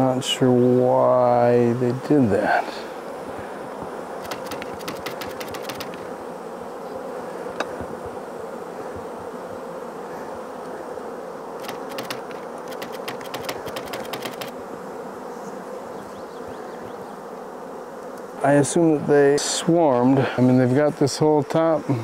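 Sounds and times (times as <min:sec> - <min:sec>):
honeybees buzzing: 0:00.0 - 0:22.0
typewriter key clicks: 0:11.6 - 0:14.5.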